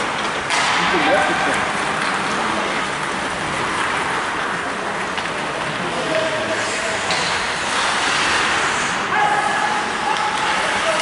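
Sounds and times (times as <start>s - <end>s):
skate blades hissing on ice: 6.5s - 9.1s.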